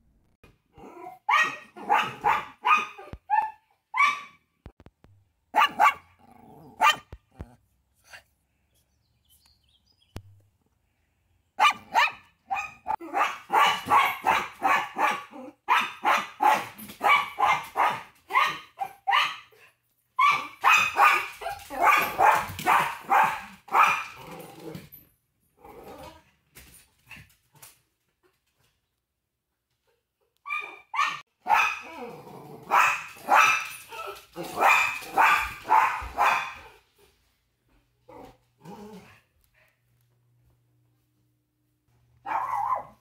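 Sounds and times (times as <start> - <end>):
dog barking: 1.3 - 4.4, 5.5 - 7.2, 11.6 - 24.2, 30.5 - 32.0, 32.6 - 36.8, 42.2 - 43.0.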